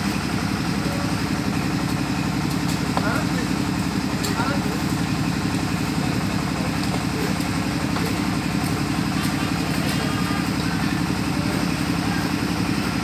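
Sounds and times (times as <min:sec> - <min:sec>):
small engine idling: 0:00.0 - 0:13.0.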